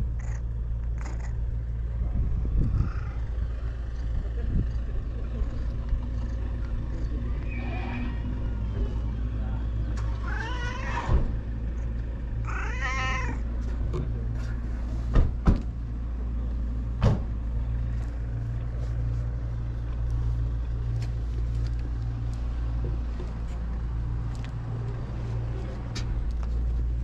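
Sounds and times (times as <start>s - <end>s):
steady low rumble: 0.0s - 27.0s
cat meowing: 10.0s - 11.2s, 12.4s - 13.4s.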